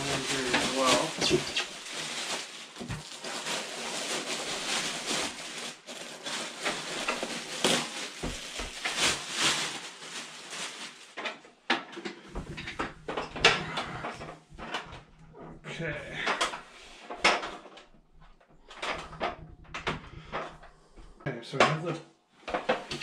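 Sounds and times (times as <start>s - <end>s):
plastic bag crinkling: 0.0s - 11.3s.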